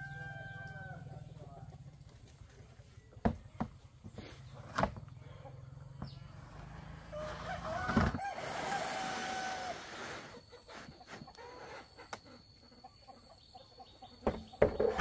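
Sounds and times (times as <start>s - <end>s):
rooster crowing: 0.0s - 1.3s, 7.0s - 10.2s.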